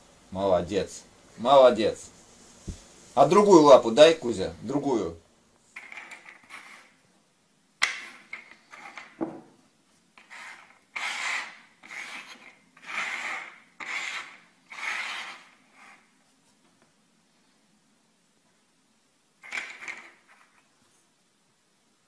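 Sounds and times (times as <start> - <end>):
hand scraping treats on wooden table: 5.8 - 7.0, 7.8 - 9.2, 10.1 - 16.7, 19.4 - 20.8.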